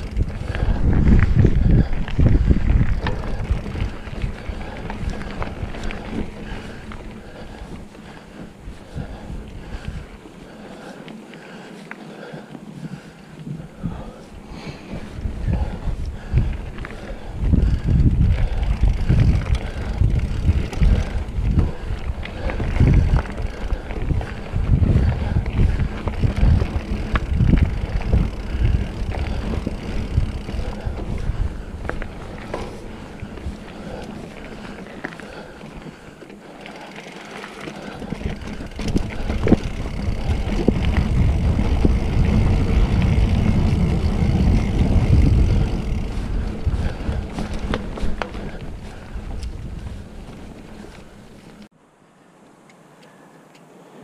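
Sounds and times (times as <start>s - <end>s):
bike frame rattling: 0.0s - 10.1s, 12.2s - 51.7s
wind buffeting microphone: 0.0s - 11.0s, 12.3s - 51.7s
bike tyres on dirt: 0.0s - 51.8s.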